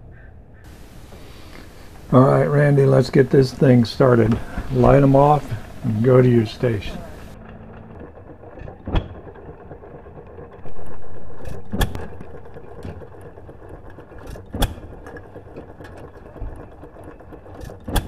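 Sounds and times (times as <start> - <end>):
engines running in background: 0.6 - 18.0
engine exhaust pops: 10.6 - 16.8, 17.6 - 18.0.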